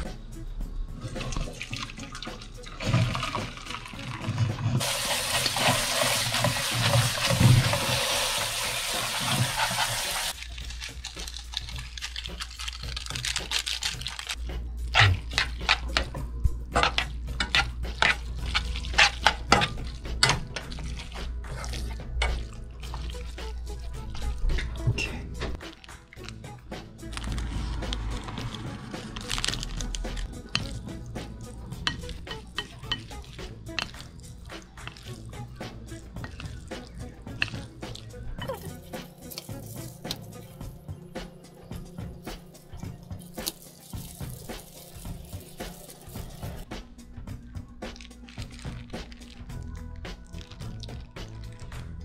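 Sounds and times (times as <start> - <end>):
water pouring into a steel sink: 1.2 - 10.4.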